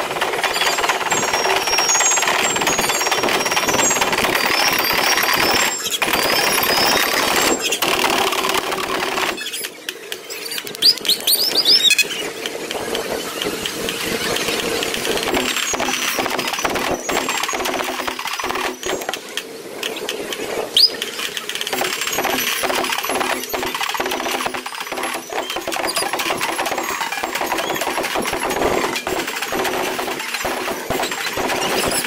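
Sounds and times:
slow vehicle engines: 0.0 - 32.0
marching drum corps playing: 21.7 - 32.0.

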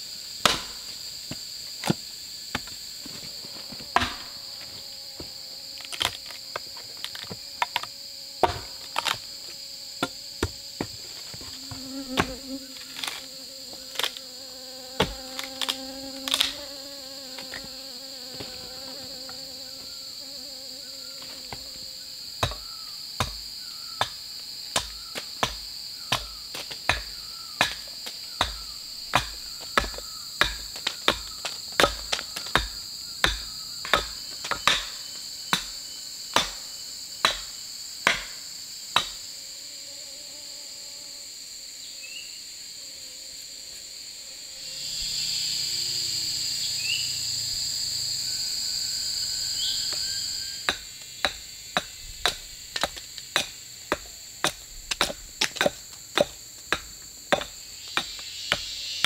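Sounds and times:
insects droning: 0.0 - 59.0
tool striking wood: 0.4 - 0.8, 4.0 - 4.3, 28.4 - 34.9, 37.2 - 38.4, 50.7 - 58.7
fly buzzing: 2.4 - 25.1, 39.2 - 52.9.

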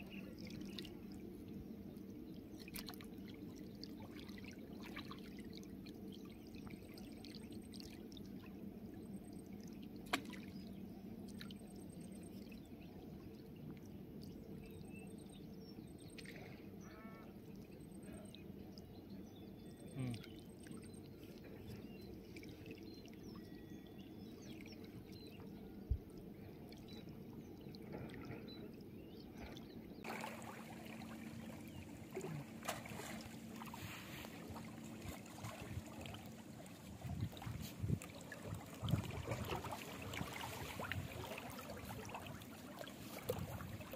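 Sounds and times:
river water lapping: 0.0 - 12.6, 15.6 - 18.7, 19.8 - 43.9.

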